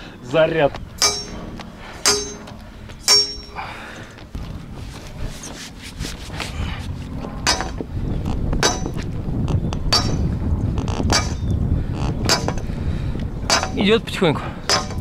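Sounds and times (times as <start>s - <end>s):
hammer clanging on steel pipe: 1.0s - 1.4s, 2.0s - 3.6s, 9.9s - 10.3s, 13.5s - 13.8s, 14.7s - 15.0s.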